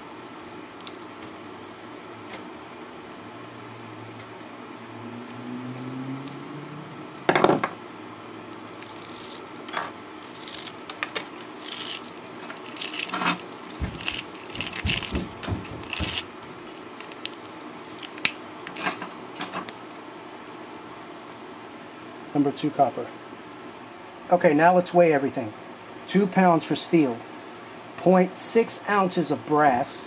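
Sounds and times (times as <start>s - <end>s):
metal parts clinking and rattling: 8.5s - 19.6s
loud knock: 13.8s - 16.3s.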